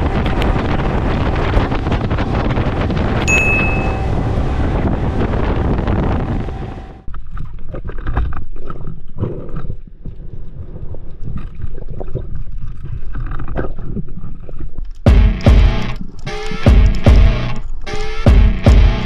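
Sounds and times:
wind rushing over microphone: 0.0s - 7.1s
muffled water gurgling and knocking: 0.0s - 19.0s.

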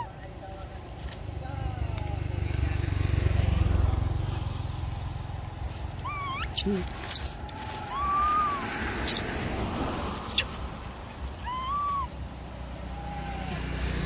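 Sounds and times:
shrill monkey squeaks: 6.0s - 7.3s, 7.9s - 9.2s, 10.3s - 10.5s, 11.4s - 12.1s
monkey coos: 6.0s - 9.3s, 10.3s - 10.5s, 11.4s - 12.1s.

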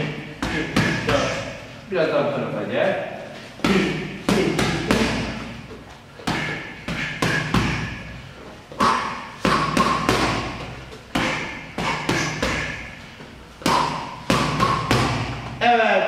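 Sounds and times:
boxing gloves punching: 0.0s - 1.4s, 3.6s - 5.6s, 6.2s - 8.2s, 8.8s - 13.0s, 13.6s - 15.6s.

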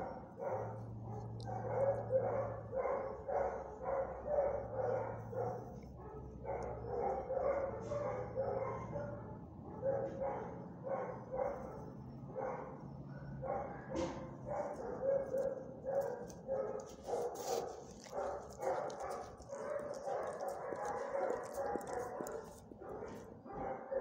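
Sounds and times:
dogs barking: 0.0s - 24.0s.

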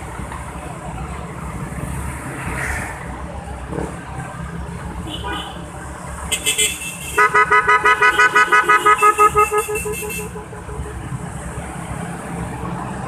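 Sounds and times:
wind and engine rumble: 0.0s - 6.3s
scooter horn beeping: 6.3s - 11.0s.

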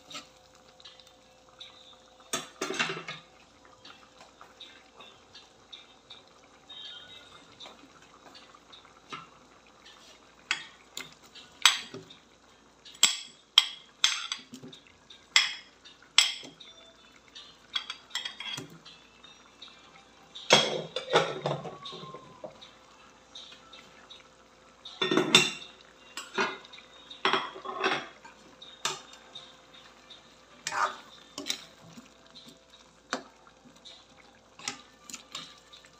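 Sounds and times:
spoon clattering in a metal wok: 30.6s - 31.7s.

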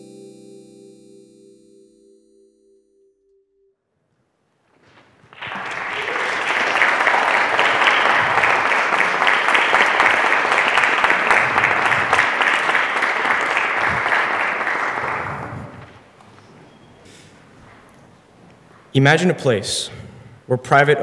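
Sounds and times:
audience clapping: 5.2s - 16.5s.

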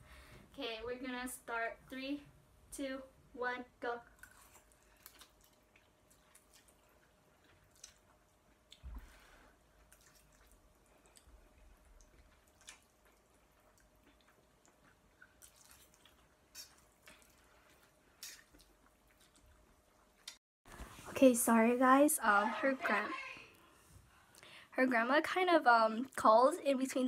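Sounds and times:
slurping and chewing noodles: 4.1s - 20.4s.

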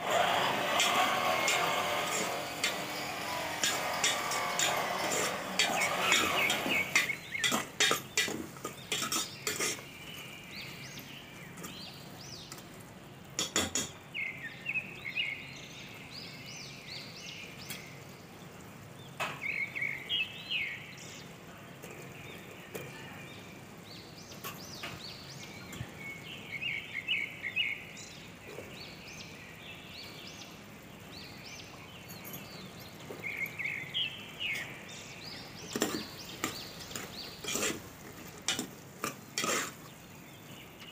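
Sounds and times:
metal spoon scraping steel pot: 0.5s - 10.2s, 35.7s - 39.8s.

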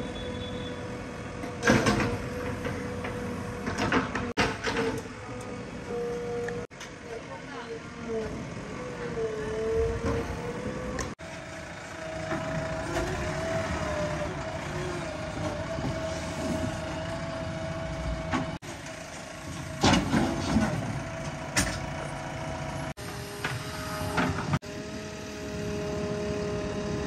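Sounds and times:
diesel engine running with whine: 0.0s - 27.0s.

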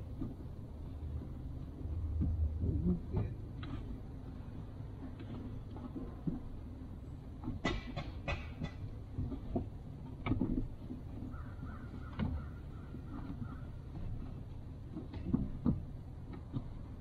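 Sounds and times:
low background rumble: 0.0s - 17.0s
knocks and clunks: 5.0s - 17.0s.

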